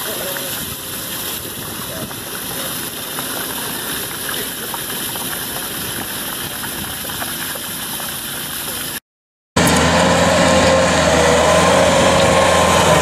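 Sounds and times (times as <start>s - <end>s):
water jet splashing into pool: 0.0s - 9.0s.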